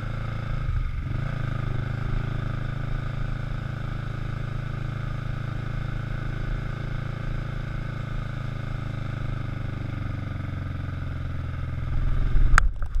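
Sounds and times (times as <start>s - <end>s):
motorcycle engine running: 0.0s - 13.0s.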